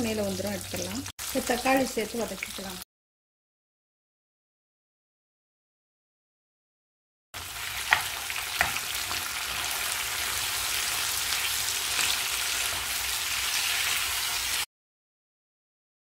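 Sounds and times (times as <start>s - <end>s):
vegetables sizzling in oil: 0.0s - 2.8s, 7.4s - 14.7s.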